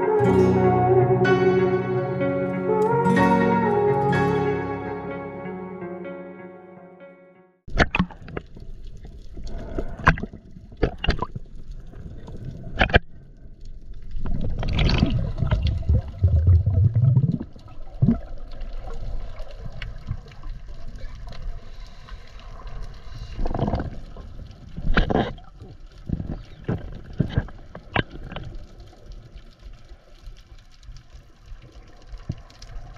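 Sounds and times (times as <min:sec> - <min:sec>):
sea water splashing and gurgling: 0:07.7 - 0:32.9.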